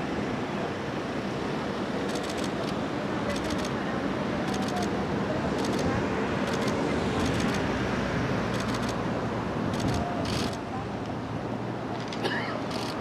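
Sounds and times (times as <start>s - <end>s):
traffic rumble: 0.0s - 13.0s
wind: 0.0s - 13.0s
camera shutter clicks: 2.1s - 3.8s, 6.5s - 7.6s, 8.6s - 9.0s, 9.8s - 10.6s, 12.0s - 13.0s.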